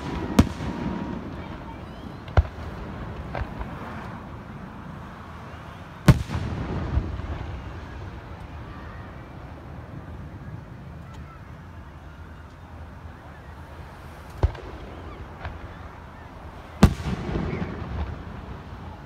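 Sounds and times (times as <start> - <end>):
firework bangs: 0.0 - 10.1, 14.3 - 19.0.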